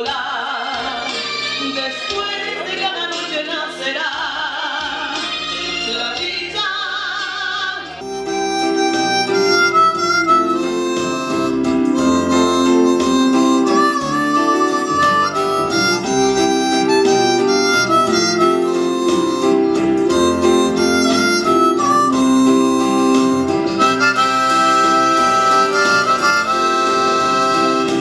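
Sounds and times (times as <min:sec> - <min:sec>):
woman singing with vibrato: 0:00.0 - 0:08.0
harmonica playing chords: 0:08.0 - 0:28.0.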